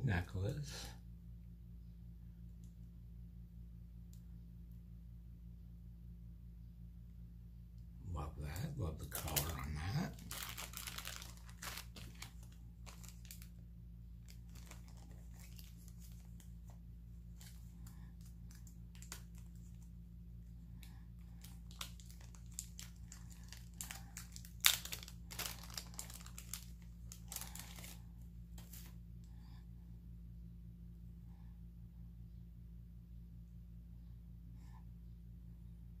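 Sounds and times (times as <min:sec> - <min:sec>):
low hum: 0:00.7 - 0:36.0
plastic wrapping crinkling: 0:08.6 - 0:19.9, 0:20.8 - 0:29.0.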